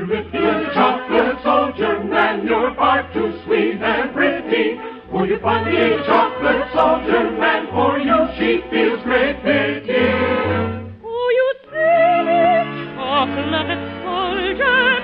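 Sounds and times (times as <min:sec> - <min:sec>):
choir singing: 0:00.0 - 0:11.0
orchestra playing: 0:00.0 - 0:11.0.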